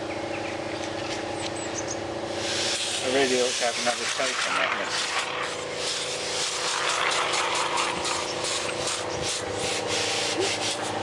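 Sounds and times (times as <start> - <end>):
air hissing: 2.2 - 4.0, 4.8 - 11.0.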